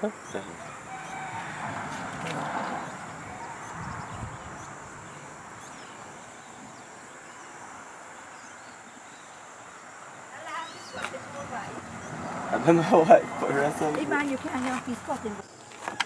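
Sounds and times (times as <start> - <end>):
faint bird chirps: 2.8 - 7.6.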